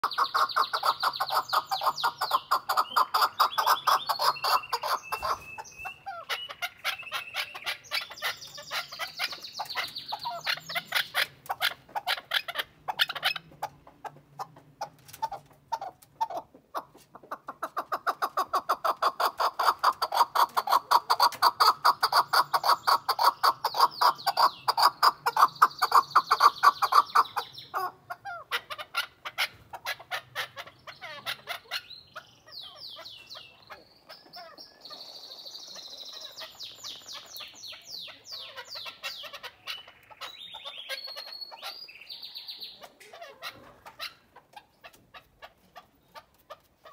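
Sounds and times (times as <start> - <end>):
partridge clucking: 8.9 - 27.2.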